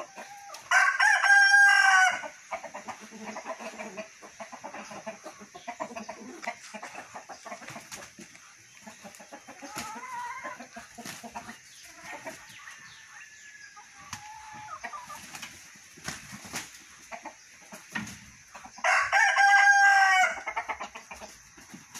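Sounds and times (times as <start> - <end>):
chickens clucking: 0.0 - 21.9
roosters scuffing and wing flaps: 6.4 - 12.8, 14.0 - 17.0, 17.7 - 18.6, 20.9 - 21.9.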